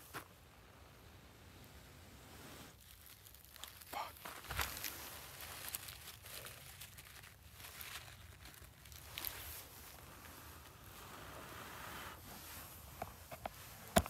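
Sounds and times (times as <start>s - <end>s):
small crackles: 1.6s - 14.0s
dry leaves and paper rustling: 2.7s - 11.3s.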